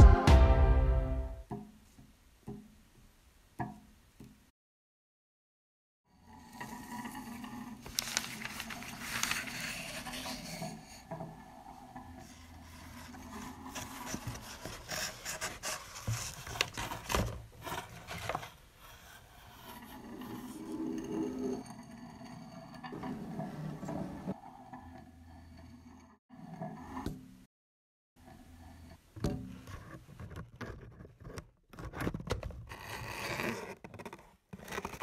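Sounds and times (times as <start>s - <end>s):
paper and cardboard scraping: 7.8s - 11.0s, 12.2s - 20.5s, 29.8s - 35.0s.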